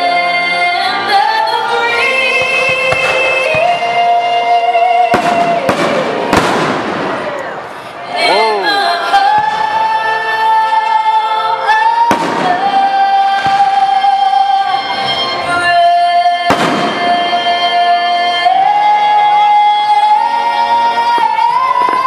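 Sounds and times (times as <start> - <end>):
firework bursts: 5.1 - 7.9, 16.5 - 17.7
singer holding high notes: 7.2 - 9.3.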